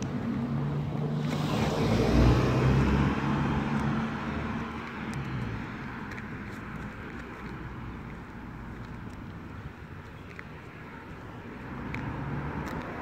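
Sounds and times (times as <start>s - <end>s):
motor vehicle passing: 0.0s - 9.7s.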